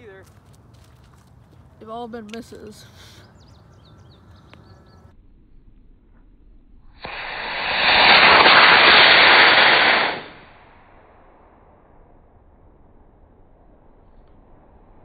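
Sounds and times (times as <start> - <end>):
model rocket motor rushing hiss: 7.0 - 10.5.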